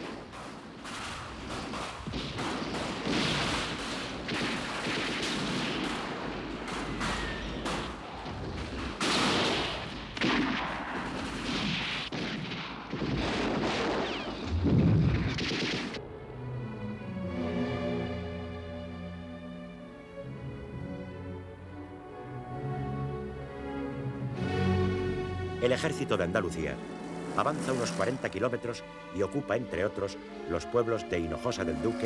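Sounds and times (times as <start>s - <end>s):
gunfire volleys: 0.0s - 16.0s
heavy explosion boom: 14.4s - 15.4s
orchestral music: 16.0s - 32.0s.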